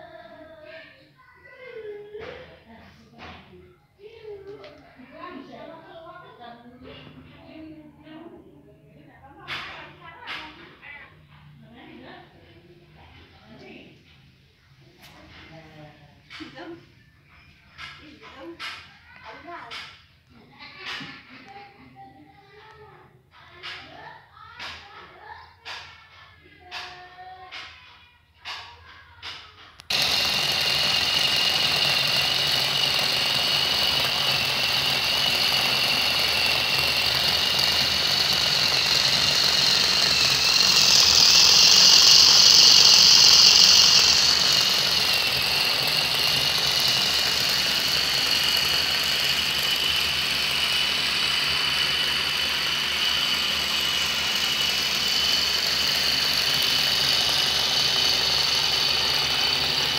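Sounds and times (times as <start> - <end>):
small electric motor whining: 29.9 - 59.9.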